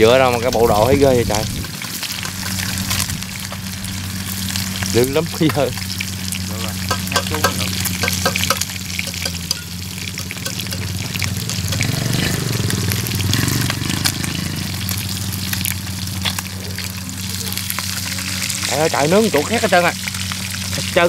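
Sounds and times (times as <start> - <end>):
meat sizzling in oil: 0.0 - 21.0.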